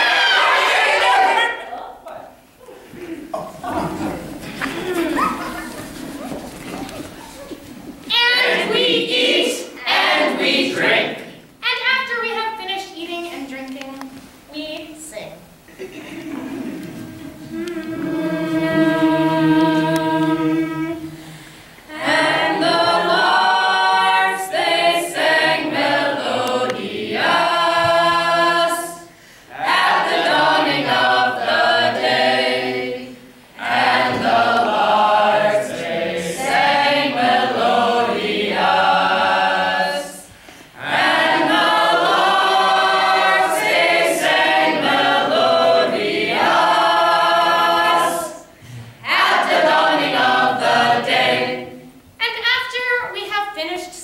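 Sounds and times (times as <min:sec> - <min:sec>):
chorus singing unaccompanied: 0:00.0 - 0:02.3, 0:08.1 - 0:11.4, 0:16.4 - 0:21.3, 0:21.9 - 0:52.0.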